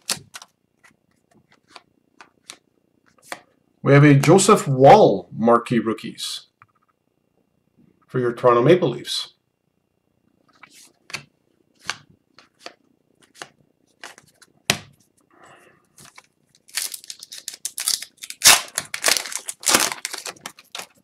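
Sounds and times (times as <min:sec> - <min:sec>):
foil wrapper tearing and crinkling: 0:16.5 - 0:21.0.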